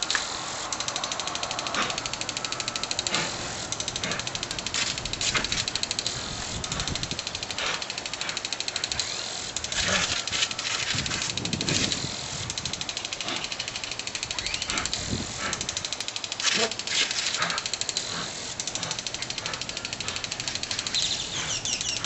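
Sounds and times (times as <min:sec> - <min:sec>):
water hissing from garden hose: 0:00.0 - 0:22.0
dog snapping and splashing: 0:16.4 - 0:17.6.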